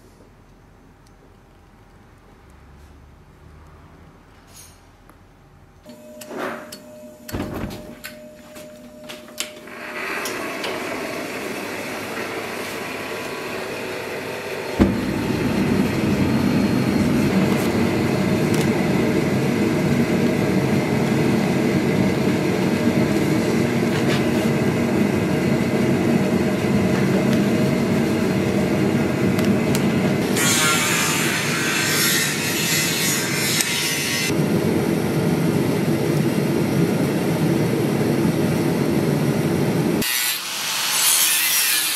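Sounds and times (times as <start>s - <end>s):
forge burner roaring: 9.5s - 32.0s
sharp knocks: 14.8s - 17.2s.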